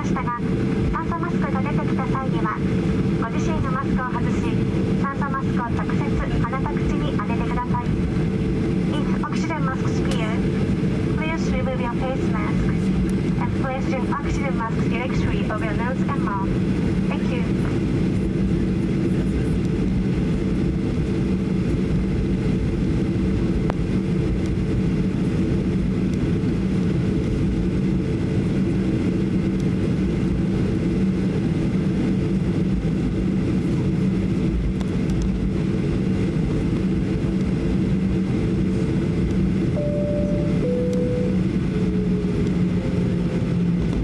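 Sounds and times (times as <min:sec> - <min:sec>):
airplane cabin engine hum: 0:00.0 - 0:44.0
short descending tones: 0:39.8 - 0:41.5.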